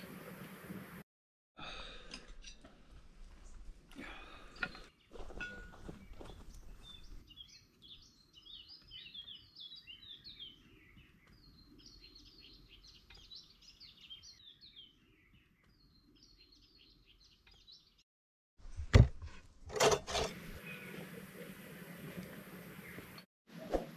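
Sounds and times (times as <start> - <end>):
birds chirping: 3.4 - 18.0, 20.4 - 23.3.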